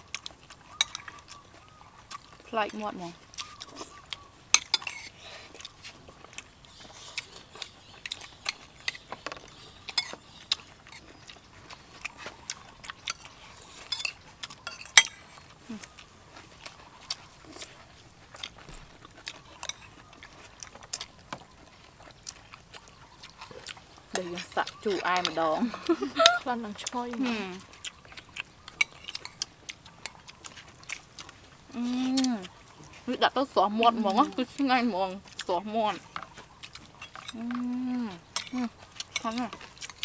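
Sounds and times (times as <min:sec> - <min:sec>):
chewing: 0:00.0 - 0:40.0
cutlery clinking on plates: 0:00.7 - 0:01.1, 0:09.9 - 0:10.2, 0:13.8 - 0:15.2.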